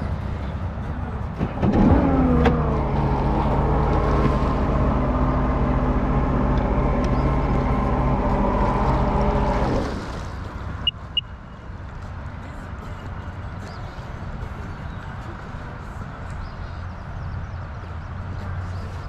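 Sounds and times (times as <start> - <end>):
motorboat engine running: 0.0 - 11.3.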